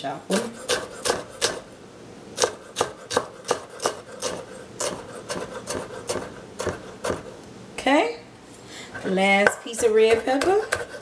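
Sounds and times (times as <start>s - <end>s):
knife chopping on wooden board: 0.3s - 1.6s, 2.4s - 7.3s, 9.4s - 11.0s.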